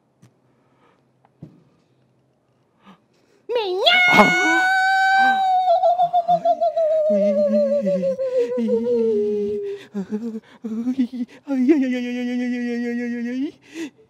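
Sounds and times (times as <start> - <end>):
wavering vocal wail: 3.5 - 10.4
low vocal sounds: 3.8 - 14.0.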